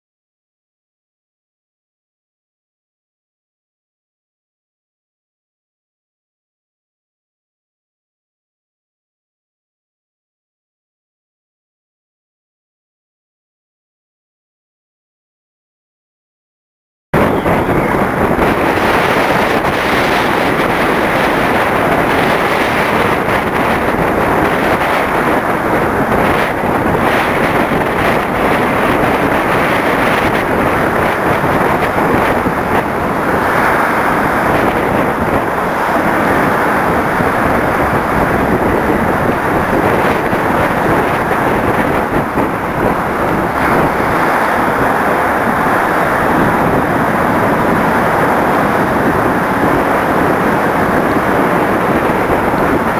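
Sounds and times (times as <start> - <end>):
rough sea rushing along hulls: 17.2 - 52.9
strong wind buffeting microphone: 17.2 - 52.9.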